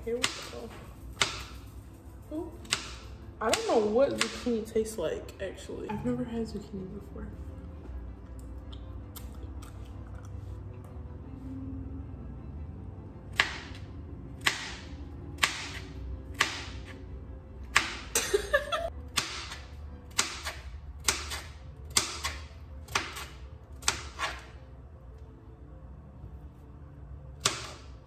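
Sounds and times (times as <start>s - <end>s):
knife chopping on plastic board: 1.1s - 1.6s, 14.4s - 16.9s, 19.1s - 24.4s.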